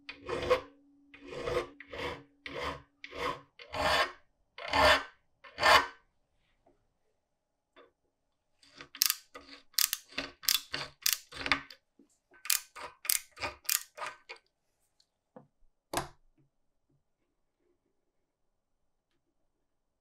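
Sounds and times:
hand cutter scraping metal: 0:00.0 - 0:05.9, 0:12.5 - 0:14.3.

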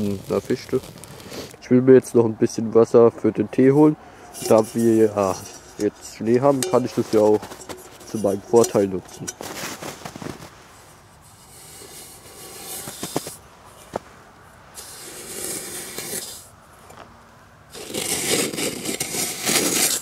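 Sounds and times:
metal pot scraping through snow: 0:00.0 - 0:01.6, 0:03.7 - 0:14.0, 0:14.8 - 0:16.5, 0:17.7 - 0:20.0.

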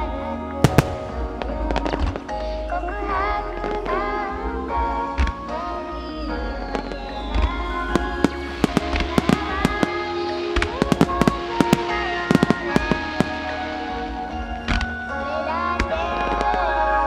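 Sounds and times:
background music: 0:00.0 - 0:17.0
firework shells exploding: 0:00.6 - 0:02.7, 0:06.8 - 0:14.0.

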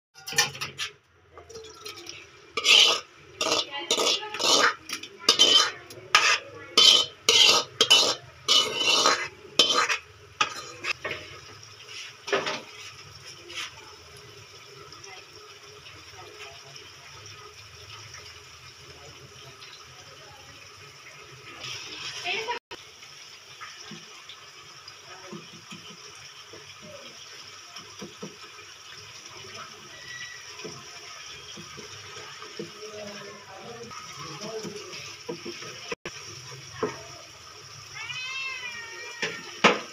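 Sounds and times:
steel spoon scraping a pan: 0:00.2 - 0:01.0, 0:01.7 - 0:13.7
masala sizzling in oil: 0:00.2 - 0:39.9.

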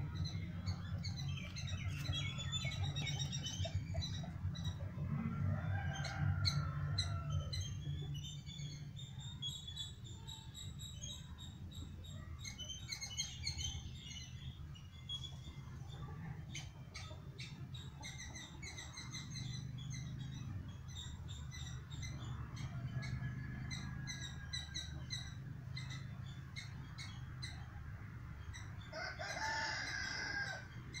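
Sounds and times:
birds chirping: 0:00.0 - 0:31.0.

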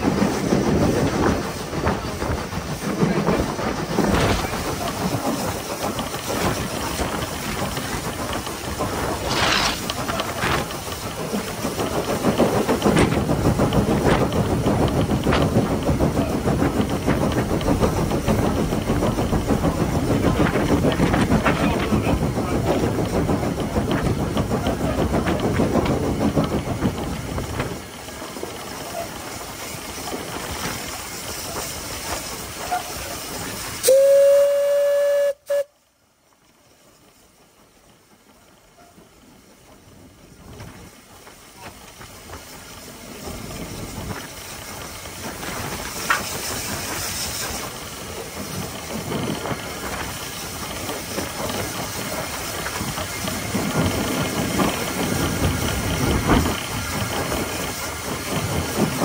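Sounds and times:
steam locomotive running: 0:00.0 - 0:59.0
steam whistle: 0:33.8 - 0:35.8.

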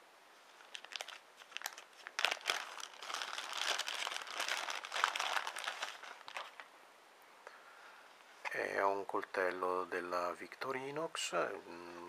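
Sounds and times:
plastic bag crinkling: 0:00.6 - 0:06.7.

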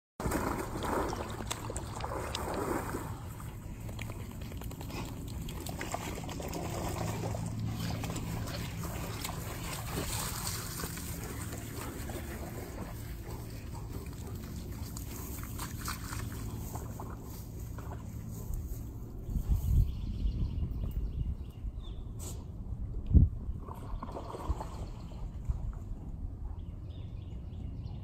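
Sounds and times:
steady low hum: 0:00.2 - 0:28.0
dogs moving on grass: 0:07.1 - 0:19.1.

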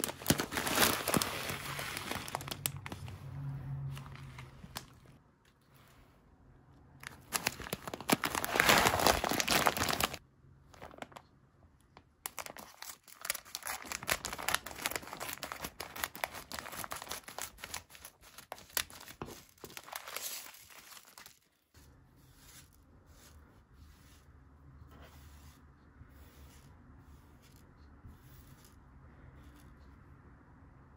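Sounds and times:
scissors cutting plastic bag: 0:00.0 - 0:02.9, 0:07.3 - 0:10.2
plastic bag crinkling: 0:00.0 - 0:03.1, 0:07.0 - 0:11.2, 0:12.2 - 0:21.7.

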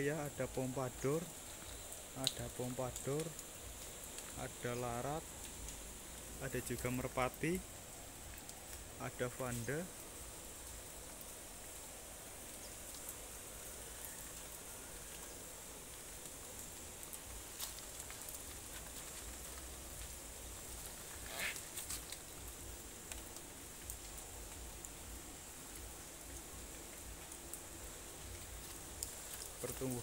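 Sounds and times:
steady low hiss: 0:00.0 - 0:30.0
small clicks and crackles: 0:01.2 - 0:08.9, 0:12.4 - 0:30.0.

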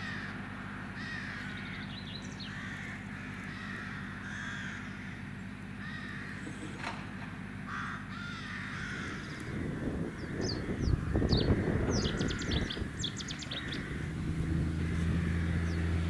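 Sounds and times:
bird harsh calls: 0:00.0 - 0:06.8, 0:07.6 - 0:16.0
steady low hum: 0:00.0 - 0:16.0
higher bird chirps: 0:08.6 - 0:16.0.

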